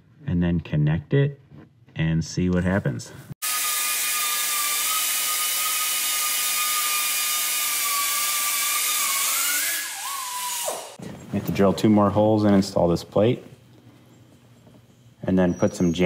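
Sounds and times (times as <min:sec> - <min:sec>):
cut-off grinder cutting steel: 0:03.4 - 0:11.0.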